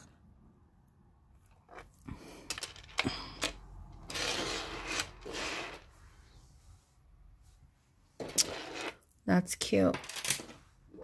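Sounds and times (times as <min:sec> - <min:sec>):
necklace rustling on table: 0:01.5 - 0:06.6, 0:08.2 - 0:09.0.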